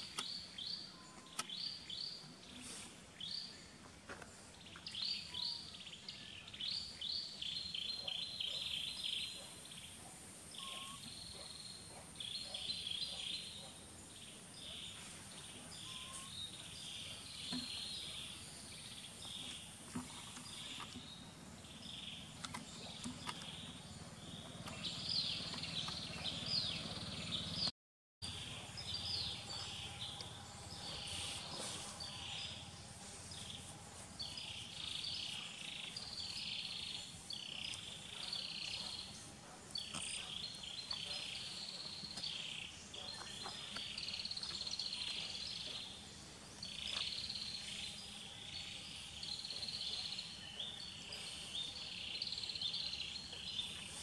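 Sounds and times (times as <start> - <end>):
high chirping calls: 6.8 - 19.6.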